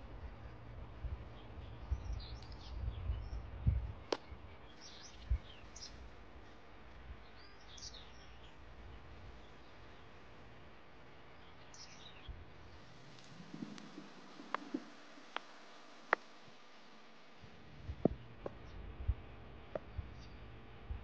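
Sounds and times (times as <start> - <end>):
small birds chirping: 0.0 - 18.9, 19.5 - 20.6
low rumble: 12.2 - 21.0.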